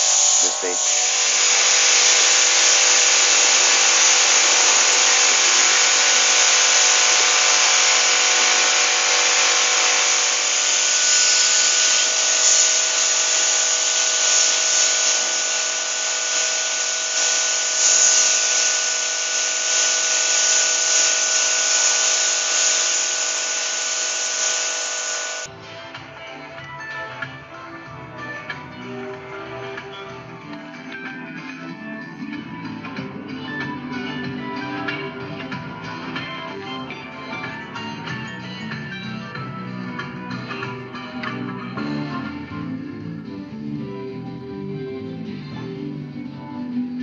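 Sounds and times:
pressure washer spraying water: 0:00.0 - 0:25.5.

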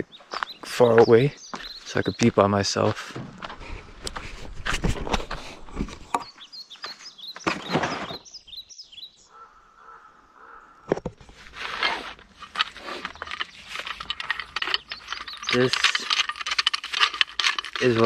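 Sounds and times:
small birds chirping: 0:00.0 - 0:03.8, 0:05.3 - 0:11.0, 0:12.5 - 0:18.0
rustling and crunching: 0:00.2 - 0:06.3, 0:10.9 - 0:18.0.

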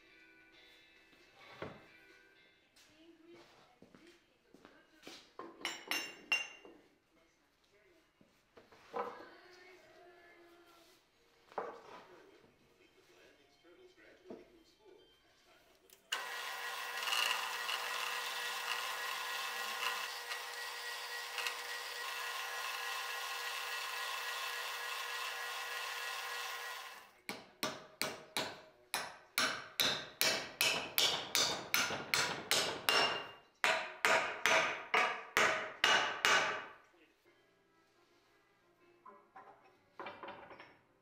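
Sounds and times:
metal lathe running with whine: 0:16.1 - 0:27.0.

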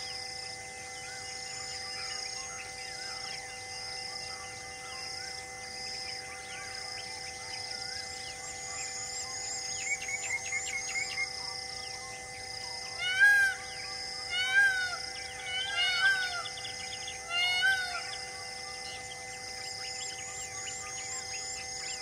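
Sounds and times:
steady background drone: 0:00.0 - 0:22.0
animal calls: 0:12.9 - 0:19.2.

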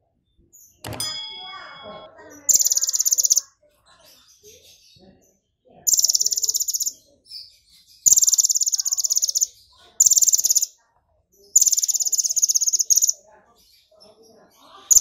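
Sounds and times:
bird singing buzzing trills: 0:01.0 - 0:03.4, 0:05.9 - 0:06.9, 0:08.0 - 0:10.7, 0:11.6 - 0:13.2.

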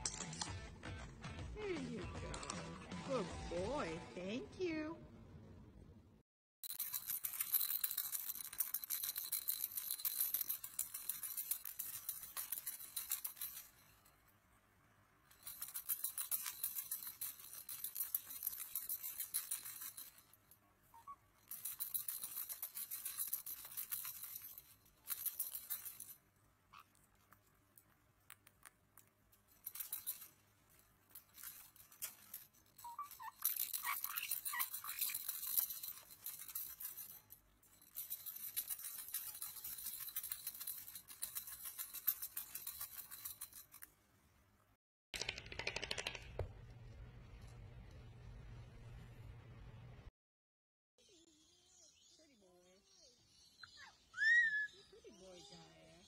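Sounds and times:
high bird squeaks: 0:20.9 - 0:21.3, 0:32.8 - 0:35.3, 0:53.6 - 0:55.0
parrots scratching on wire cage: 0:26.7 - 0:37.2.

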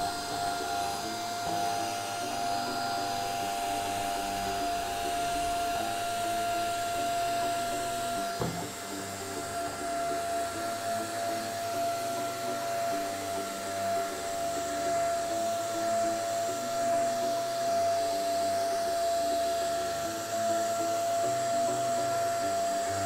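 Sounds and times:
handheld vacuum cleaner whine: 0:00.0 - 0:23.0
brief knock: 0:08.4 - 0:08.8.

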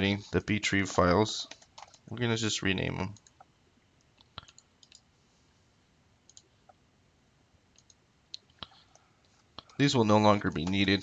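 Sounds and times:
keyboard and mouse clicks: 0:01.4 - 0:02.1, 0:03.0 - 0:05.1, 0:06.3 - 0:06.8, 0:07.7 - 0:10.9.

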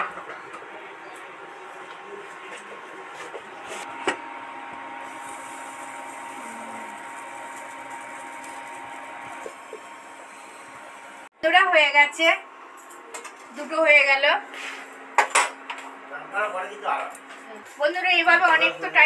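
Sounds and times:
gas burner hissing: 0:04.8 - 0:11.3.

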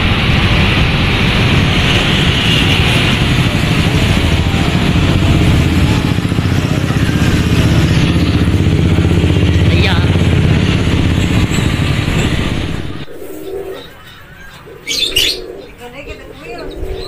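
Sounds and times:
wind noise on microphone: 0:00.0 - 0:09.0
motorcycle engine running: 0:00.0 - 0:13.1
street traffic: 0:00.0 - 0:17.0.

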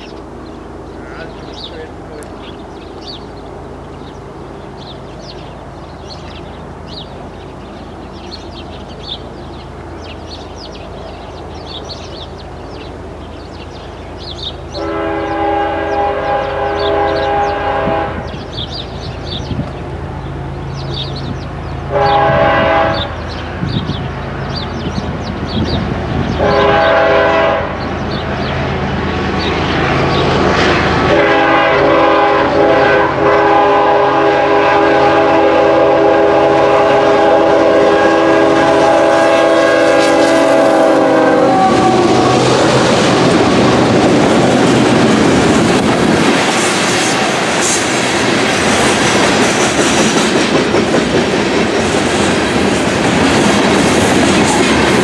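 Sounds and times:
diesel locomotive engine drone: 0:00.0 - 0:55.0
multi-tone air horn blasts: 0:14.8 - 0:18.4, 0:21.9 - 0:23.2, 0:26.4 - 0:27.8, 0:31.1 - 0:42.7.

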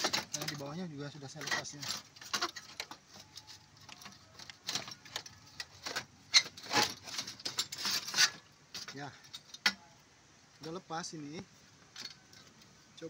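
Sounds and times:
metal clinking: 0:00.0 - 0:10.0.

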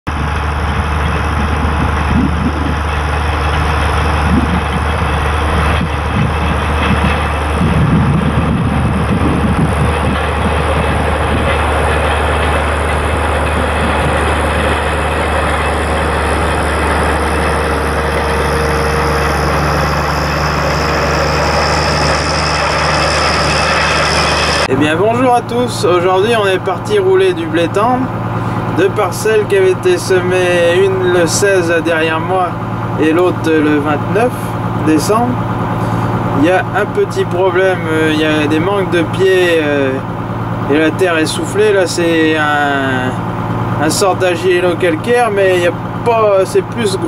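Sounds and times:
diesel tractor engine running: 0:00.1 - 0:47.0
field roller rumbling: 0:00.1 - 0:47.0.

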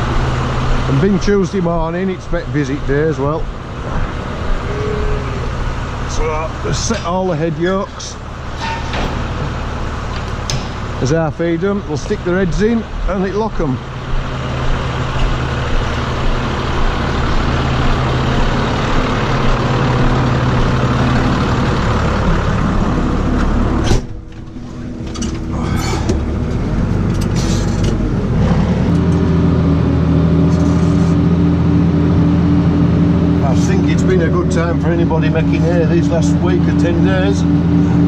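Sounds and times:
tractor diesel engine running: 0:00.0 - 0:38.0
cab door banging shut: 0:23.8 - 0:25.4.

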